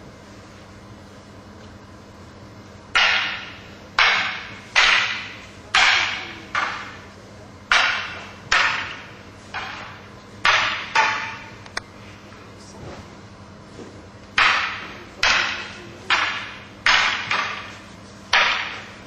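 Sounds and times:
sharp slaps echoing in hall: 2.9s - 7.1s, 7.7s - 11.9s, 14.3s - 19.0s.

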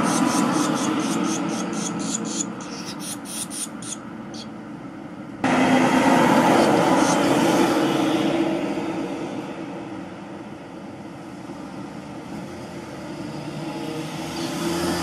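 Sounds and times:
nestlings chirping rapidly: 0.0s - 4.5s.

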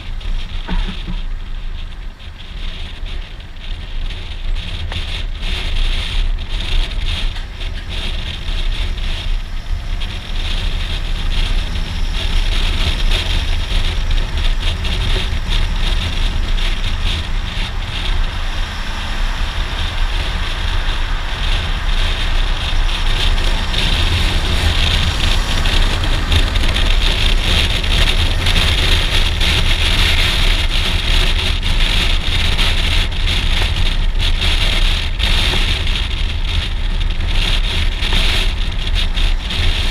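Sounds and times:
motorcycle engine running: 0.0s - 39.9s
wind rushing over microphone: 0.0s - 39.9s.

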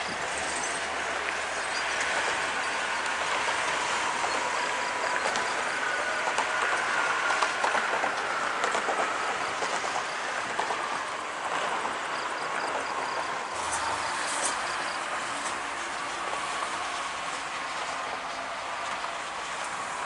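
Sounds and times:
vehicles driving past: 13.0s - 20.0s.

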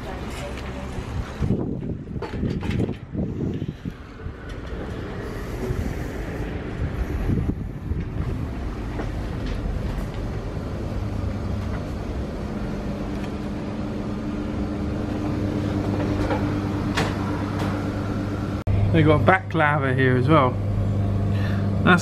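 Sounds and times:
steady low tone: 3.3s - 22.0s
kitchen equipment humming: 5.1s - 22.0s.

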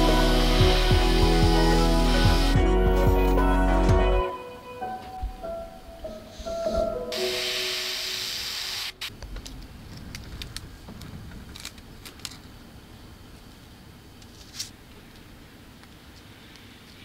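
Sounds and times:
spray paint hiss: 0.0s - 2.6s, 7.2s - 9.1s.

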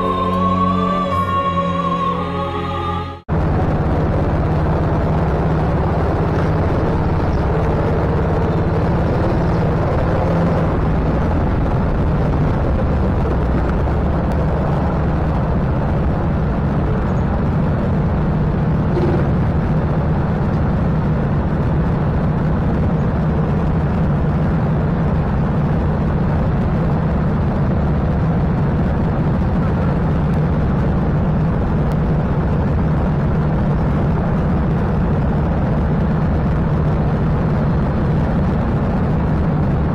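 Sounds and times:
go-kart engines running: 3.3s - 39.9s.

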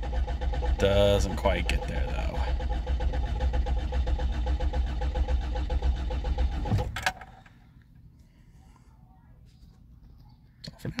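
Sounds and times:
car engine cranking: 0.0s - 7.6s.

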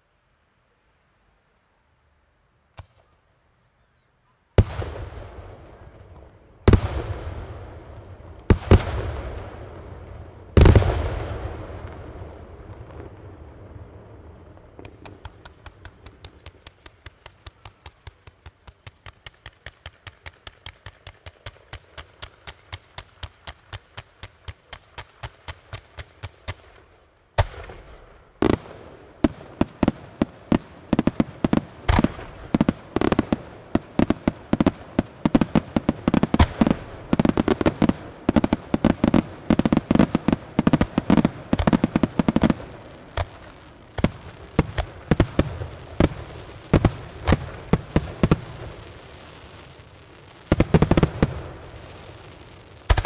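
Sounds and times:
firework comets popping: 14.5s - 26.6s, 28.4s - 53.0s.

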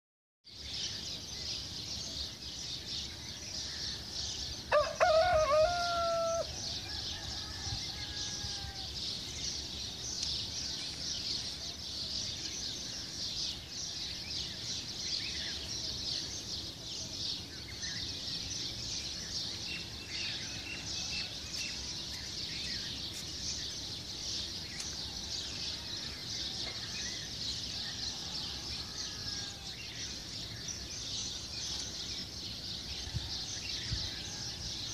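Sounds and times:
rooster crowing: 4.7s - 9.0s, 28.0s - 29.8s.

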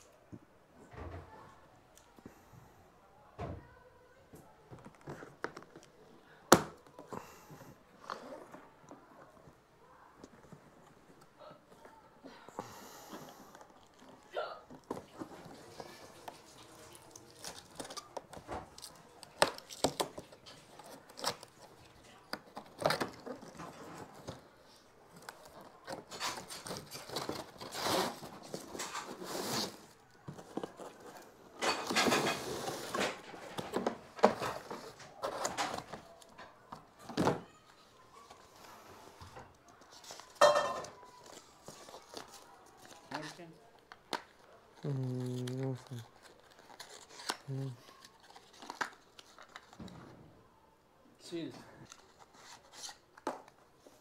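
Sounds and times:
cardboard rustling and scraping: 13.5s - 37.4s, 45.3s - 50.2s, 51.8s - 54.0s.

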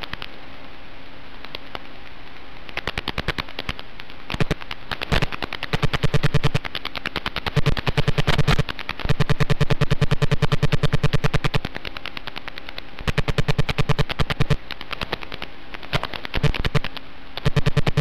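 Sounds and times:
rapid electronic clicking: 0.0s - 0.4s, 1.3s - 18.0s
electronic buzz: 4.3s - 11.7s, 13.0s - 18.0s.

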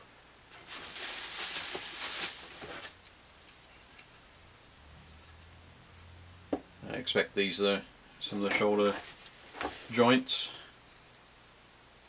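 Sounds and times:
plastic and bubble wrap rustling: 0.5s - 4.5s, 8.4s - 11.4s
faint clicks of parts handled: 10.6s - 11.4s.

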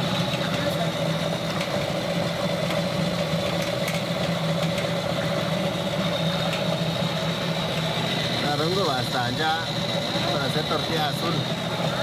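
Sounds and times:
motor humming and whining: 0.0s - 12.0s.

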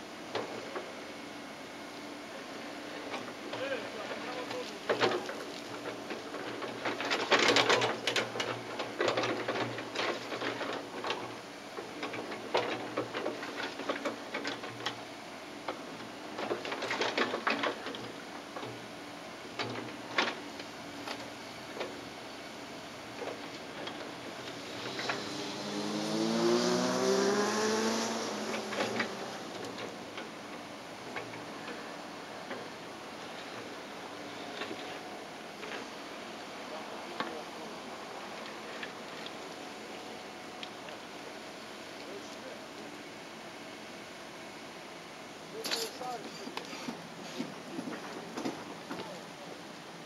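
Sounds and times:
excavator diesel engine running: 0.0s - 50.0s
engine revving up: 24.7s - 29.7s.

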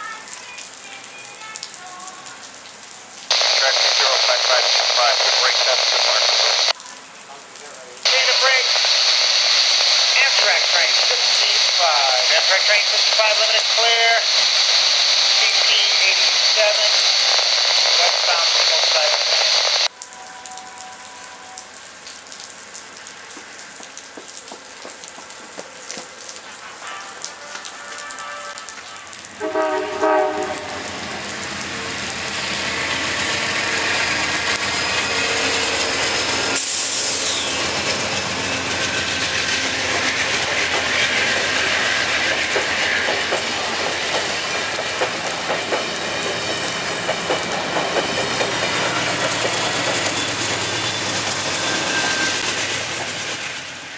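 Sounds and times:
train passing with wheel noise: 0.0s - 53.9s
train horn: 19.9s - 21.8s, 26.6s - 31.0s.

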